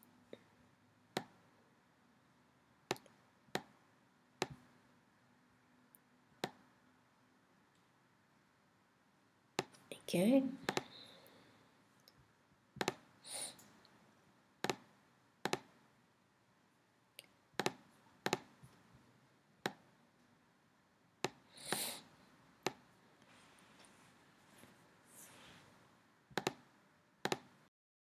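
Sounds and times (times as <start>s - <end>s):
computer mouse clicking: 12.8s - 13.0s, 14.6s - 15.7s, 17.6s - 18.5s, 26.3s - 26.6s, 27.2s - 27.5s.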